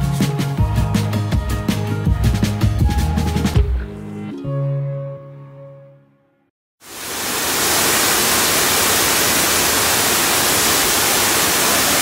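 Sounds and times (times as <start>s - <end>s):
background music: 0.0s - 6.5s
waterfall rushing into pool: 6.8s - 12.0s.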